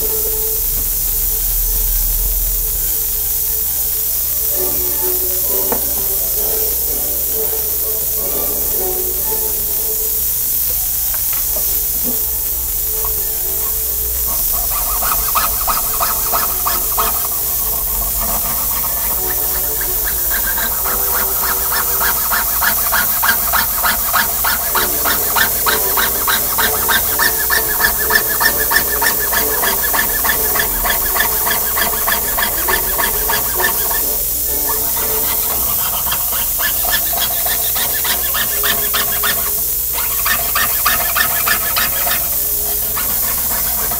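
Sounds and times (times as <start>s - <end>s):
steady hiss: 0.0s - 43.9s
saw cutting thin metal: 11.2s - 43.9s.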